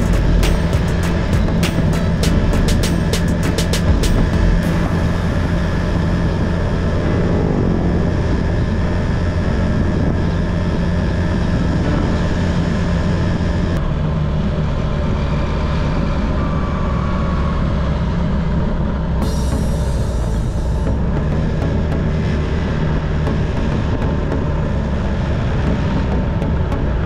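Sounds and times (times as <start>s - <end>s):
motorcycle engine running: 0.0s - 27.0s
wind and road noise: 0.0s - 27.0s.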